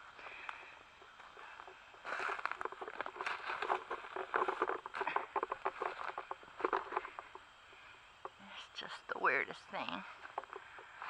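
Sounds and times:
footsteps crunching dry leaves: 1.0s - 7.4s.

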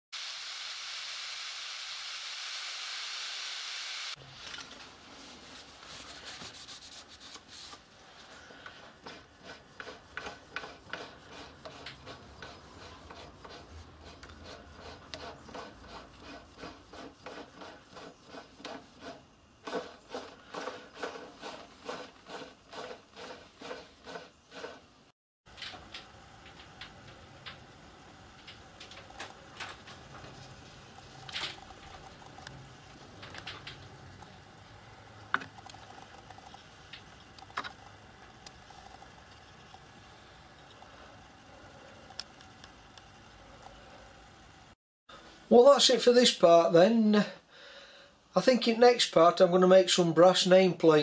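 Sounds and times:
rhythmic rubbing on metal: 8.9s - 24.8s.

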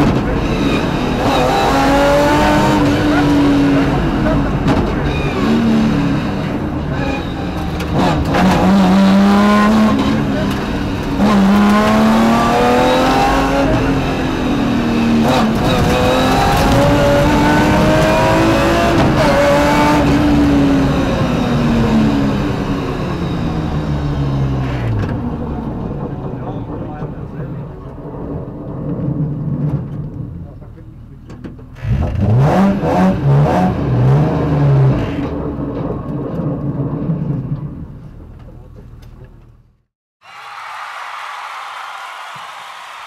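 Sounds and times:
car engine revving hard: 0.0s - 6.7s, 7.7s - 25.0s, 31.8s - 35.3s.

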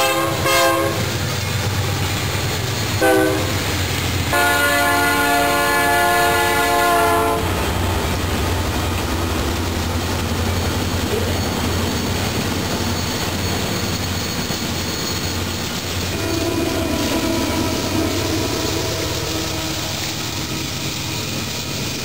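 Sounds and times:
locomotive air horn blast: 0.0s - 1.2s, 3.0s - 3.6s, 4.3s - 7.5s, 16.0s - 20.4s
rumble of passing train: 0.0s - 22.0s.

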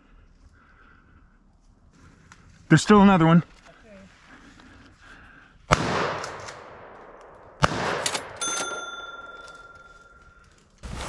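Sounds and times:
rifle shots echoing: 5.7s - 9.8s.

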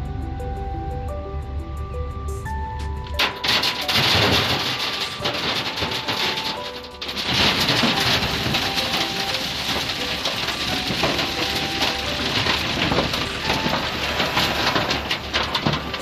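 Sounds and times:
rocks clattering into metal truck bed: 3.1s - 16.0s.

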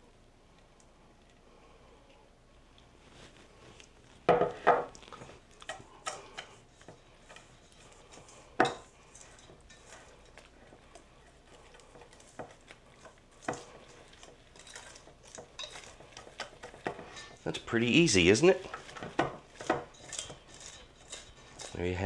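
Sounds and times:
whisk clinking in metal bowl: 5.6s - 22.0s.

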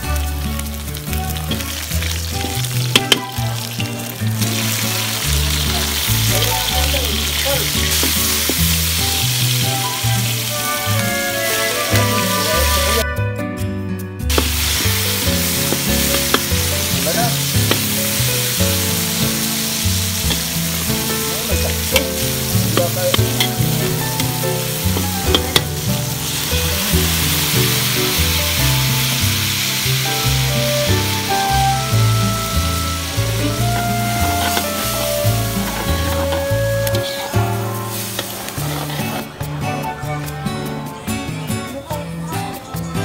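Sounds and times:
food sizzling in a wok: 0.0s - 13.0s, 14.3s - 40.8s
background music: 0.0s - 43.0s
spatula clinking against wok: 21.6s - 25.8s.

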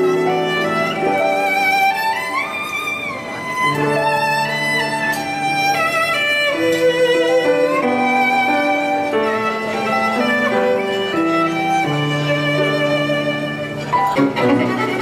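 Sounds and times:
violin melody: 0.0s - 15.0s.

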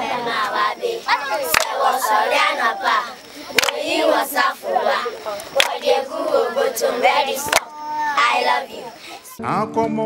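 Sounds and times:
children singing unaccompanied: 0.0s - 9.4s
sharp handclaps: 1.5s - 1.8s, 3.6s - 3.8s, 5.6s - 5.8s, 7.4s - 7.7s.

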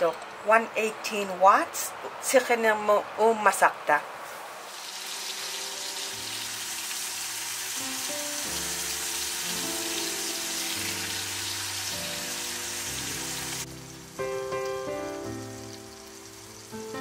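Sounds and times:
steaks sizzling in a skillet: 4.6s - 17.0s
background music with held notes: 5.0s - 17.0s.

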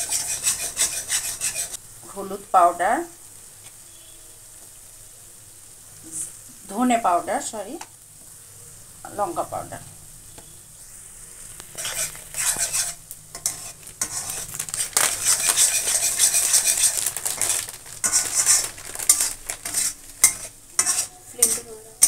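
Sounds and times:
metal spatula scraping pan: 0.0s - 1.8s, 11.7s - 21.8s
oil sizzling: 0.0s - 22.0s
spatula clinking against pan: 19.1s - 21.7s.

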